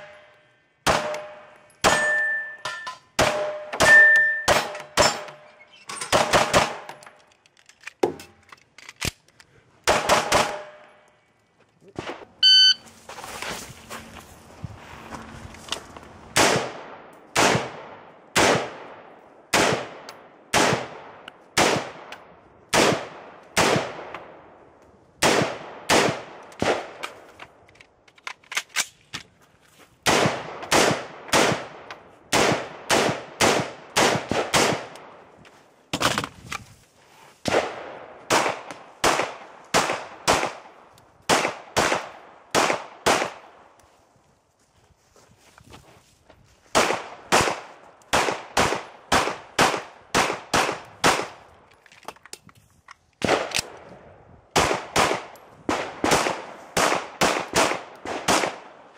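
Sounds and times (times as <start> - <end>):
pistol shots: 0.8 - 2.4, 3.2 - 5.4, 6.1 - 6.9, 9.8 - 10.8, 16.4 - 22.1, 22.7 - 24.1, 25.2 - 27.0, 30.0 - 35.1, 37.5 - 40.7, 41.3 - 43.5, 46.8 - 51.4, 54.6 - 58.8.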